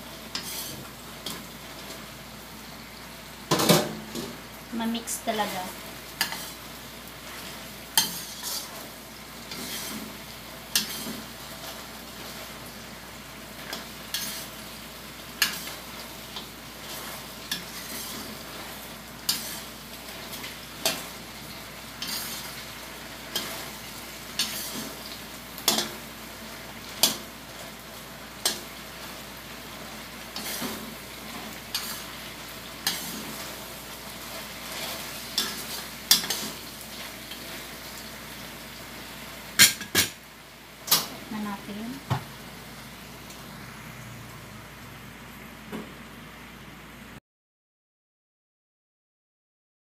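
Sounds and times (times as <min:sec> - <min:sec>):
sauce sizzling: 0:00.0 - 0:46.2
metal spatula scraping a wok: 0:00.3 - 0:01.4, 0:06.2 - 0:06.6, 0:07.4 - 0:12.5, 0:13.7 - 0:14.6, 0:15.4 - 0:15.8, 0:16.8 - 0:21.2, 0:22.0 - 0:22.6, 0:23.3 - 0:23.8, 0:24.4 - 0:25.0, 0:30.4 - 0:32.1, 0:32.8 - 0:33.6, 0:34.2 - 0:36.6.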